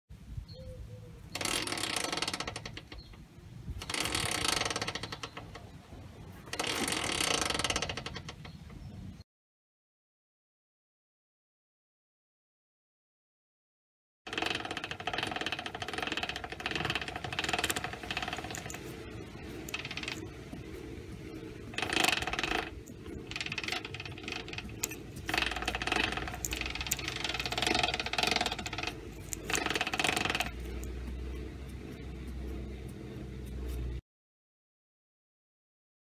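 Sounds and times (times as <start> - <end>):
gearbox ticking and rattling: 1.3 - 3.2, 3.8 - 5.7, 6.5 - 8.6, 14.3 - 34.0.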